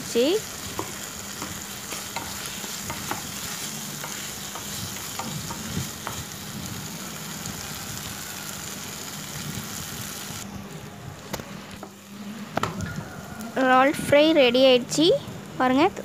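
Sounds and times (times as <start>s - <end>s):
prawns sizzling in oil: 0.0s - 14.8s
spatula scraping and tapping pan: 0.7s - 6.2s.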